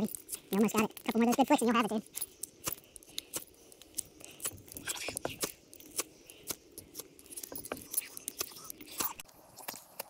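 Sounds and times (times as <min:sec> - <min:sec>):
ferro rod scraped with striker: 0:02.2 - 0:09.8.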